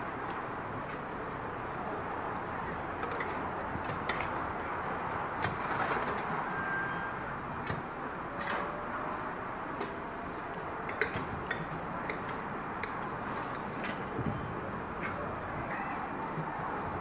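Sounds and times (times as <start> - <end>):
crossing gates clicking and knocking: 2.6 - 8.8, 10.7 - 14.4.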